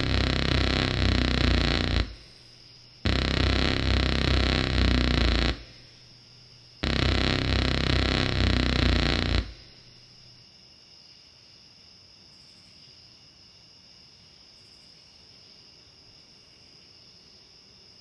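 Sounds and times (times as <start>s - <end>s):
distorted electronic burst: 0.0s - 2.4s, 3.1s - 5.9s, 6.8s - 9.9s
crickets chirring: 0.0s - 17.9s.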